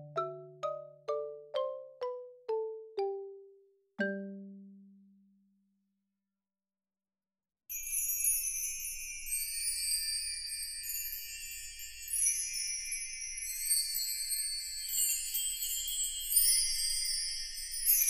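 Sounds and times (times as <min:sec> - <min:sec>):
ringing bell-like chimes: 0:07.7 - 0:18.0.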